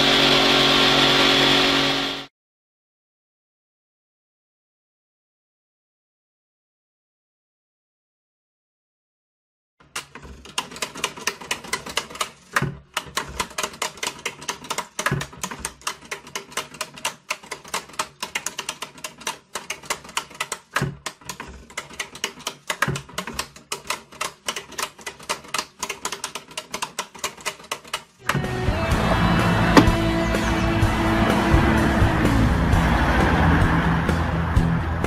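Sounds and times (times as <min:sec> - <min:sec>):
knocks of box arm: 0:29.8 - 0:30.0.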